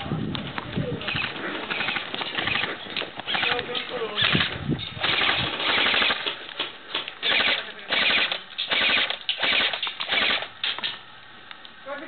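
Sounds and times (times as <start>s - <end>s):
airsoft rifle full-auto bursts: 1.1s - 3.6s, 4.2s - 6.4s, 7.2s - 10.5s.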